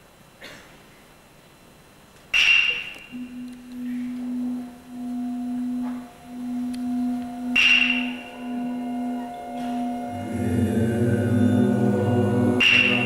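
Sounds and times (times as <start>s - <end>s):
low sustained tone: 3.1s - 13.0s
metal bell struck: 3.2s - 10.4s, 11.3s - 13.0s.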